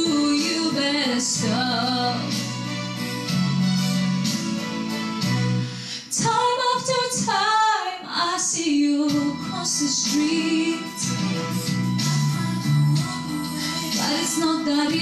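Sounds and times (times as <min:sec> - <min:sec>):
young woman singing: 0:00.0 - 0:02.6, 0:06.0 - 0:15.0
instrumental accompaniment: 0:00.0 - 0:06.1, 0:09.1 - 0:15.0.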